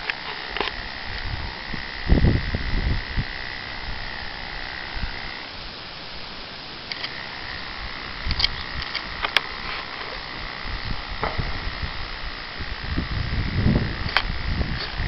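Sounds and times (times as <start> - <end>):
electric hair clippers whining: 0.0 - 15.0
low thumps: 7.6 - 15.0.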